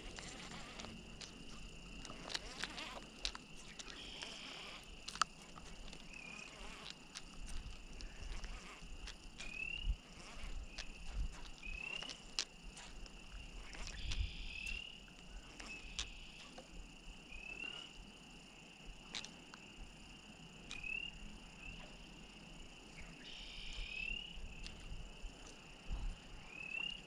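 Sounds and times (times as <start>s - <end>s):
frog rising peep: 0.0s - 16.2s
frog chorus: 0.0s - 18.2s, 20.6s - 22.1s, 22.9s - 24.9s, 26.4s - 27.0s.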